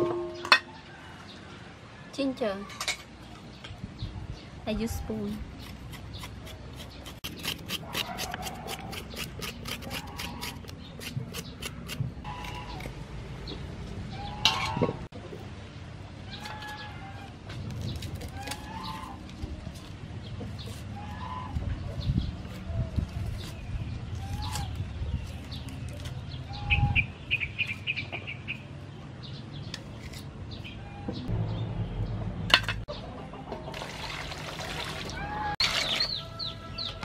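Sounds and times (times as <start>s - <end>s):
chickens clucking: 32.8s - 34.4s.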